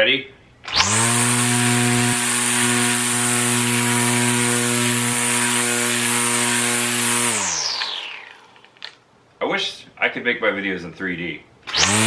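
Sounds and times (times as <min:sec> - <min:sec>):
electric string trimmer running: 0:00.7 - 0:08.7, 0:11.7 - 0:12.0.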